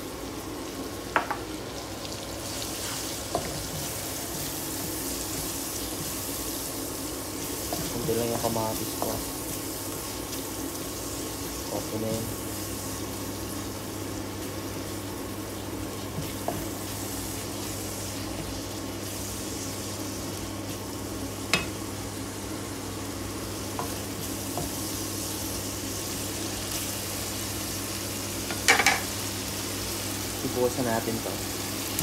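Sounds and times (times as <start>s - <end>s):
food sizzling in a frying pan: 0.0s - 32.0s
spatula knocking on pan: 1.1s - 1.4s.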